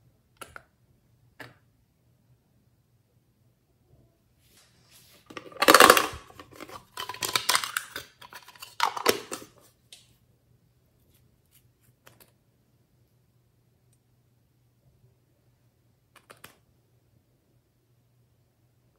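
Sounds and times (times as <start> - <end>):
blister package handling noise: 5.3 - 9.6.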